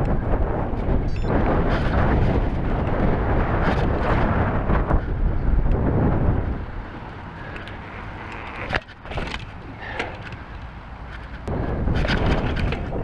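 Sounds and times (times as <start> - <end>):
bike clicks and rattles: 0.0 - 13.0
bike tyres rumbling: 0.0 - 13.0
wind buffeting microphone: 0.0 - 13.0.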